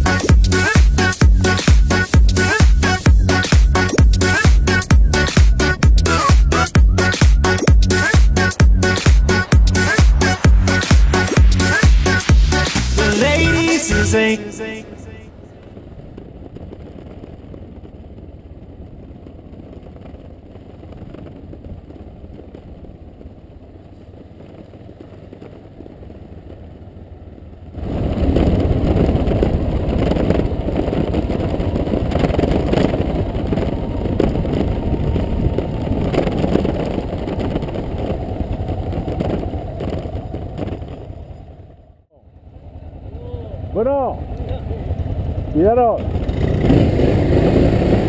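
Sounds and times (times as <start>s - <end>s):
motorcycle engine running: 0.0s - 13.8s, 15.4s - 48.0s
wind buffeting microphone: 15.1s - 42.0s, 43.0s - 48.0s.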